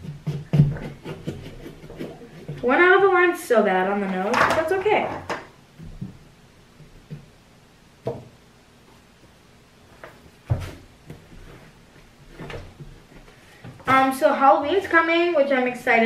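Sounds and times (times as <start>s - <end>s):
objects knocking on tabletop: 8.0s - 8.3s.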